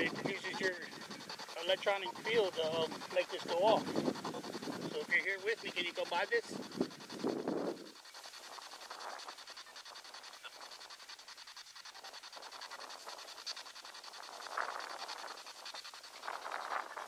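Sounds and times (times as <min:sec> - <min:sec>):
stuttering radio static: 0:00.0 - 0:10.8.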